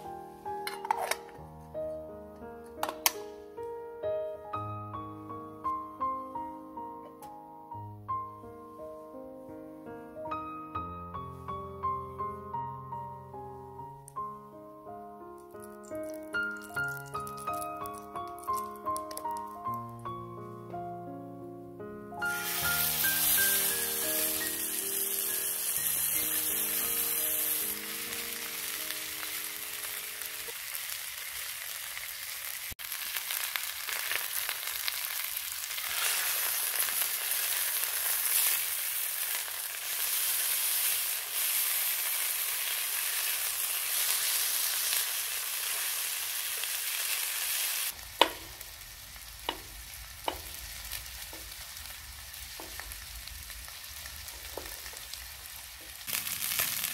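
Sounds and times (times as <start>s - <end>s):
meat sizzling in hot oil: 15.4s - 19.8s, 22.2s - 56.9s
knife tapping on cutting board: 48.2s - 48.5s, 50.3s - 50.6s.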